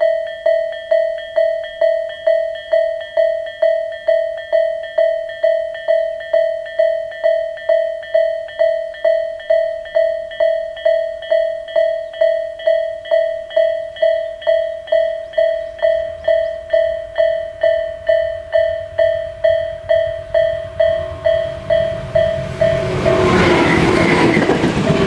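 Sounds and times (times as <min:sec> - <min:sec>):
level crossing warning bell ringing: 0:00.0 - 0:25.0.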